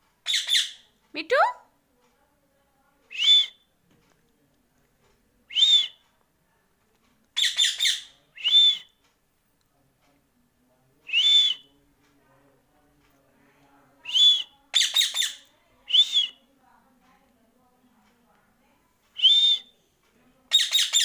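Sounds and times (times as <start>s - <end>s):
parakeet whistling: 0.2s - 0.8s, 7.4s - 8.9s, 14.1s - 16.4s, 20.5s - 21.0s.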